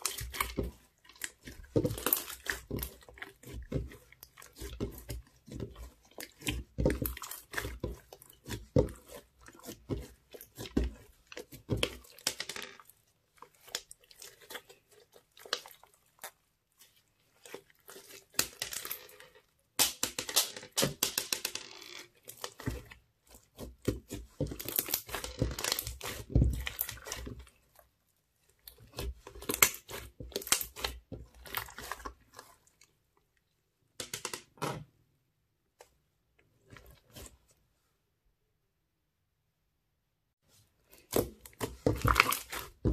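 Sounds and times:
crunchy slime crackling and popping: 22.0 - 27.6, 28.6 - 32.4, 41.0 - 42.9.

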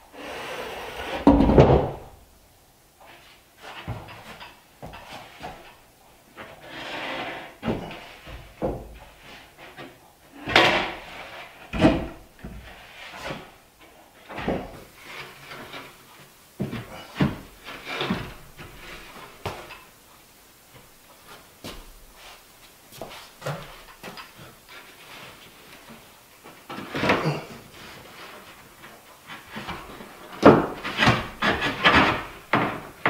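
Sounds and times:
hollow wooden thumps: 1.2 - 2.2, 29.6 - 33.0
wood panel scraping: 6.4 - 13.6, 16.6 - 19.7, 29.2 - 33.0.

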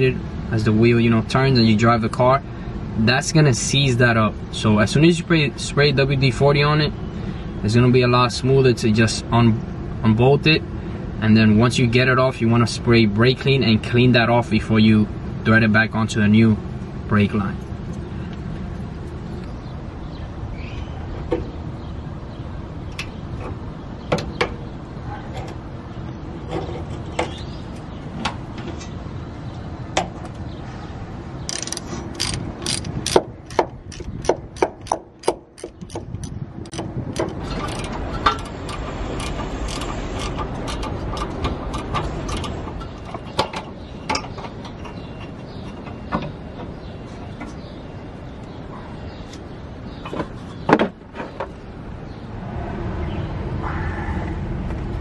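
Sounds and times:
ratchet wrench clicking: 31.5 - 42.9.

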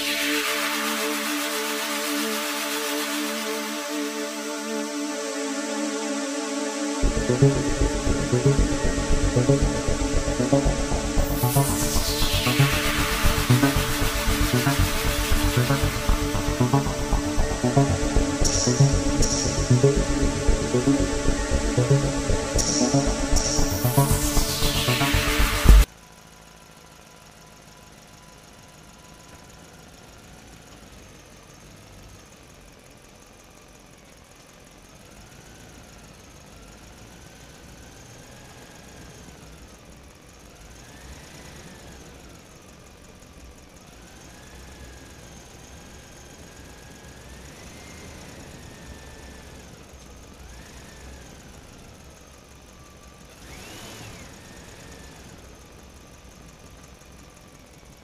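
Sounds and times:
engine whine revving: 0.0 - 25.9.

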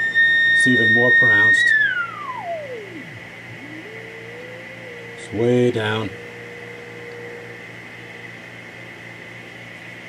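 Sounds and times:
radio hiss: 0.0 - 6.2
low hum: 0.0 - 10.0.

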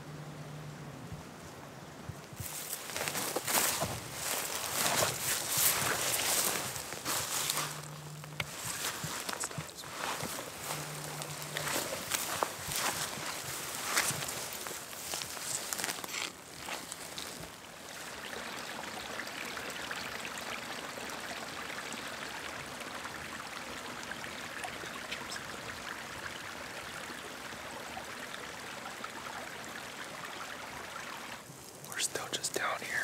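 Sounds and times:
creek water rushing: 1.9 - 32.5.

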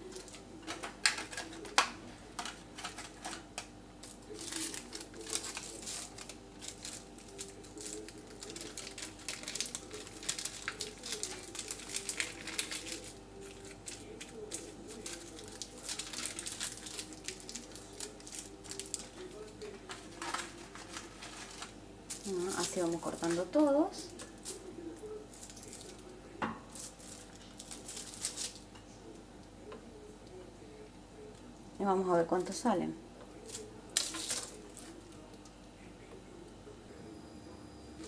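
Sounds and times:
paper crinkling and rustling: 0.0 - 24.7, 25.3 - 26.1, 26.7 - 28.6, 33.5 - 35.2
plastic film crackling: 0.0 - 26.1, 26.7 - 28.7, 33.4 - 35.4.

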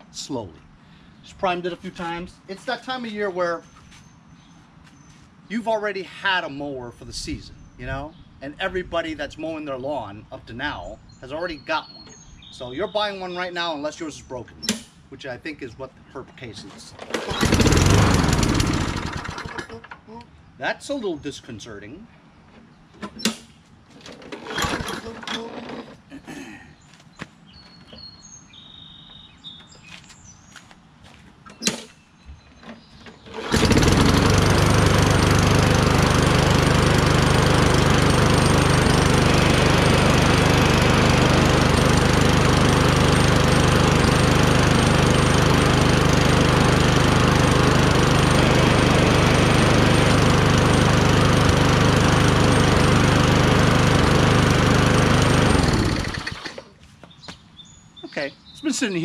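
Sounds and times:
lawn mower engine running: 16.9 - 20.0, 24.0 - 26.1, 32.8 - 56.8.

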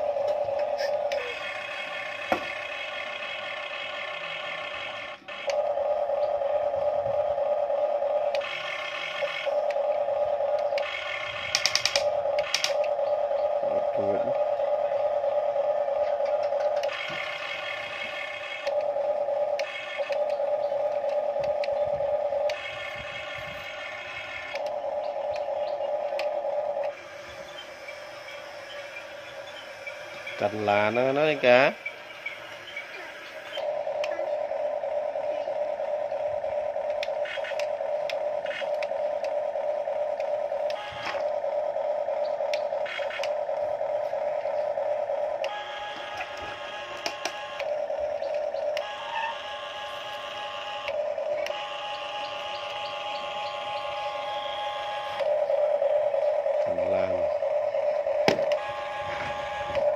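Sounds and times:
electric motors whining: 0.0 - 59.9
short high-pitched motor whines: 48.8 - 55.4.

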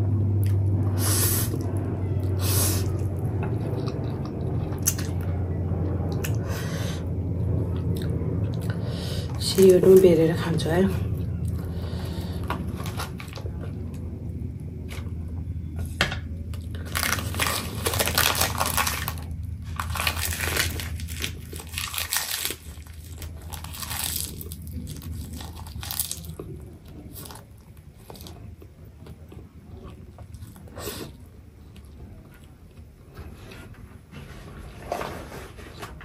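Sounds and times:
chewing sounds: 2.8 - 6.4
seaweed sheet crinkling and crunching: 16.7 - 28.5.

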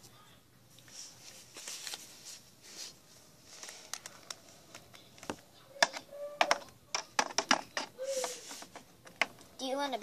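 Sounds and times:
plastic toy tapping clicks: 5.8 - 7.9.

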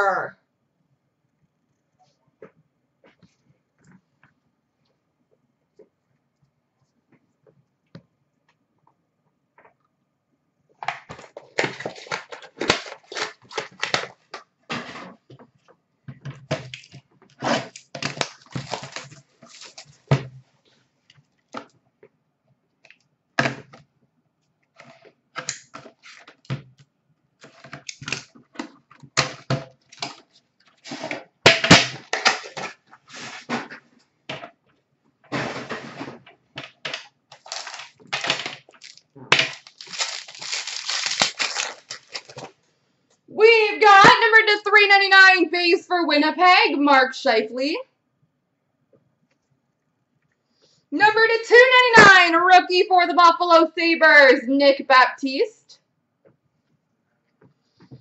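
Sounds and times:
packaging crinkling and tearing: 11.2 - 14.4, 16.7 - 20.1, 37.3 - 42.6.

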